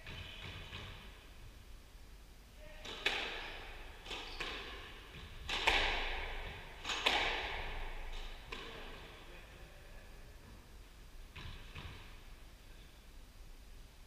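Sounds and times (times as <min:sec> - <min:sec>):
squash ball hits echoing: 0:00.0 - 0:01.3, 0:02.8 - 0:09.2, 0:11.3 - 0:12.2.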